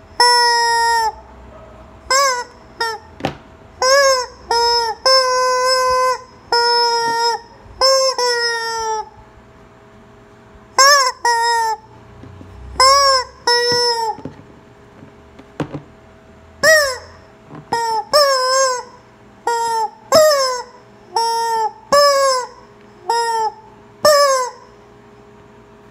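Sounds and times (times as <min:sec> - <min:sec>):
rubber chicken toy squawking: 0:00.2 - 0:01.2, 0:02.1 - 0:03.2, 0:03.8 - 0:09.2, 0:10.8 - 0:11.9, 0:12.8 - 0:14.3, 0:16.6 - 0:24.7.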